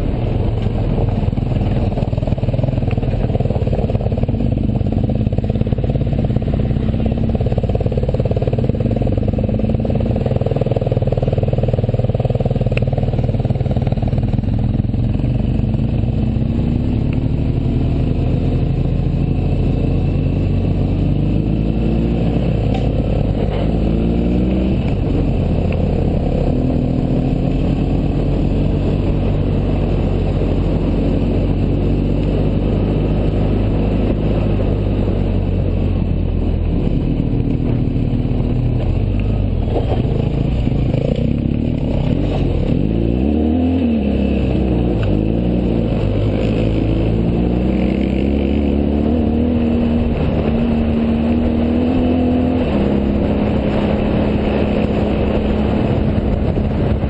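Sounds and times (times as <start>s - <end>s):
motorcycle engine running: 0.0s - 57.0s
wind rush: 42.1s - 57.0s.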